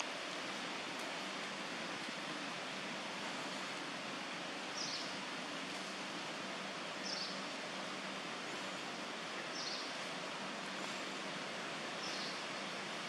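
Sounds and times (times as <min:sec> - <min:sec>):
outdoor background hiss: 0:00.0 - 0:13.0.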